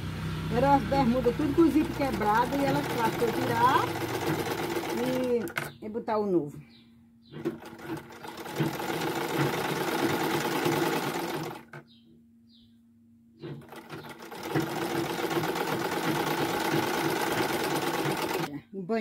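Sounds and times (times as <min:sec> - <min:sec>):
sewing machine stitching: 0:01.7 - 0:05.7, 0:07.4 - 0:11.8, 0:13.4 - 0:18.5.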